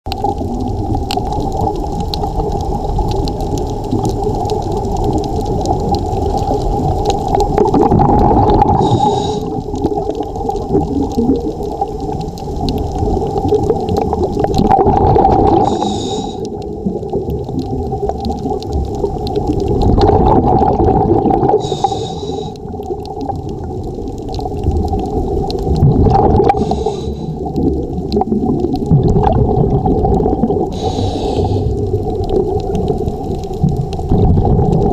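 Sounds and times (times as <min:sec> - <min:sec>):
underwater regulator breathing bubbles: 0:06.4 - 0:10.0, 0:14.0 - 0:16.6, 0:19.9 - 0:22.7, 0:26.0 - 0:28.3, 0:29.0 - 0:32.0
regulator hiss: 0:08.8 - 0:09.6, 0:15.6 - 0:16.4, 0:21.6 - 0:22.6, 0:26.6 - 0:27.4, 0:30.8 - 0:31.7.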